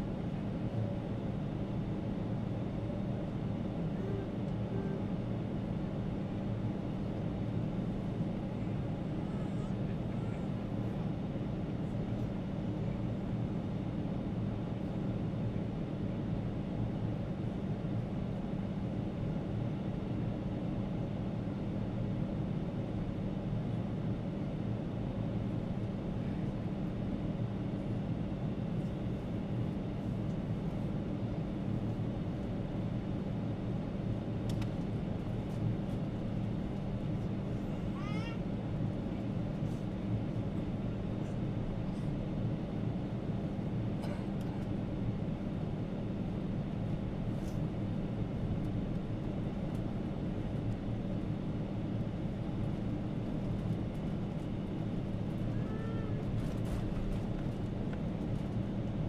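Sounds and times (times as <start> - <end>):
airliner cabin engine drone: 0.0 - 59.0
faint click: 34.5 - 34.8.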